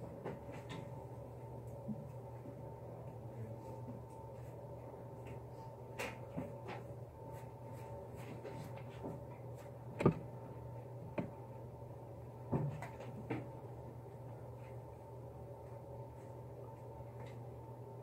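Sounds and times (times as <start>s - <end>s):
room hum: 0.0s - 18.0s.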